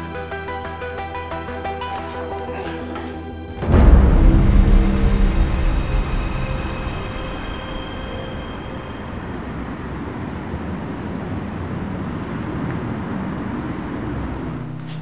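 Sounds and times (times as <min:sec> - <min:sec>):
held music notes: 0:00.0 - 0:10.7
distant city traffic: 0:00.0 - 0:15.0.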